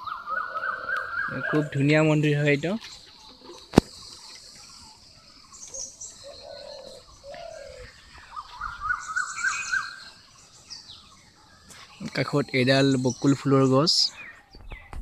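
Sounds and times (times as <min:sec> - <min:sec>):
dove cooing: 0:00.0 - 0:02.0, 0:05.6 - 0:10.1
small birds chirping: 0:00.0 - 0:15.0.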